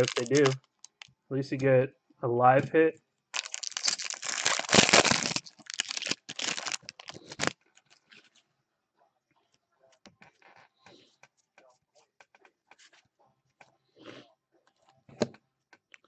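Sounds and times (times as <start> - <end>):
cards rustling: 0.0 - 1.1, 3.4 - 8.3
foil wrapper tearing and crinkling: 0.0 - 1.1, 3.4 - 8.0.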